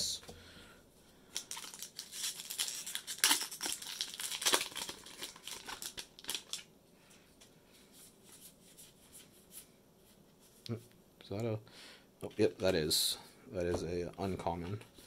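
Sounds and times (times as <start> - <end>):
foil wrapper tearing and crinkling: 1.4 - 6.7.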